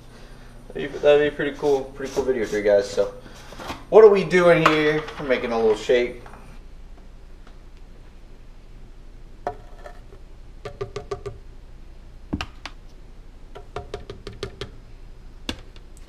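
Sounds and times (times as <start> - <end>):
scoop tapping plastic jar: 9.5 - 11.4.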